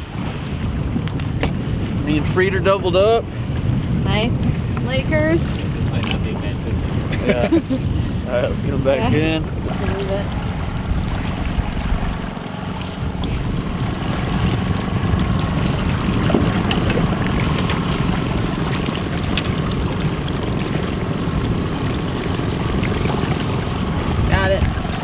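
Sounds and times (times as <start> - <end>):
outboard motor running: 0.0 - 25.0
water sloshing and splashing: 8.8 - 25.0.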